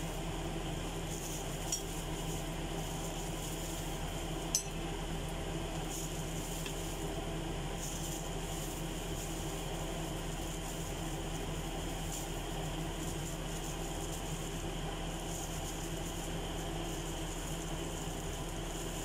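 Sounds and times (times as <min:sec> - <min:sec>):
ceramic bowl clinking: 0:04.6 - 0:04.8.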